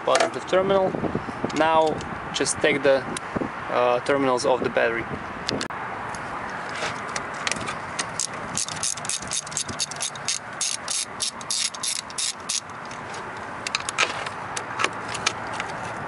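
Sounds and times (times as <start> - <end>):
metallic clicks and rattles: 7.1 - 15.7.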